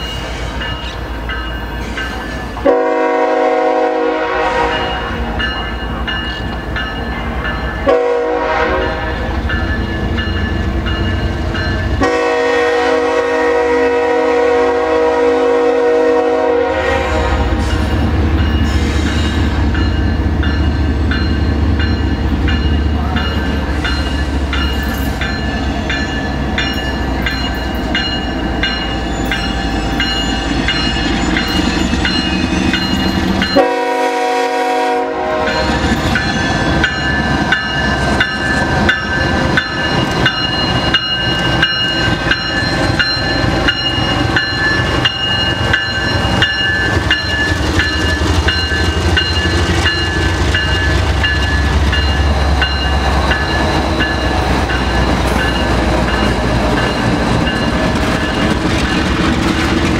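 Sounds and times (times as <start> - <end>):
locomotive air horn: 2.6 - 5.0, 7.9 - 9.2, 12.0 - 17.8, 33.6 - 35.8.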